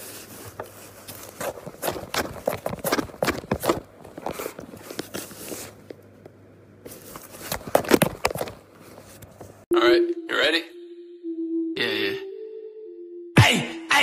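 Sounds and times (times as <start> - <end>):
cardboard box crackling: 0.0 - 5.8.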